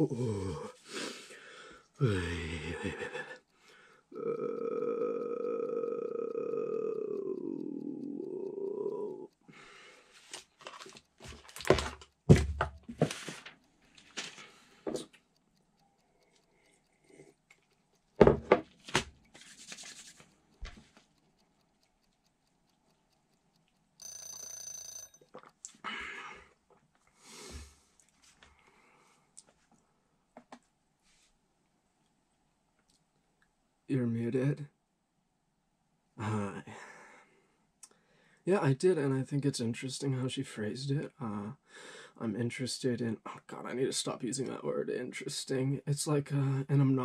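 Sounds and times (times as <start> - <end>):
low vocal groan: 0.0 - 0.8, 2.0 - 3.3, 4.1 - 9.3
rustling and handling noises: 10.1 - 15.1, 18.4 - 21.1
high-pitched tone: 24.0 - 25.2.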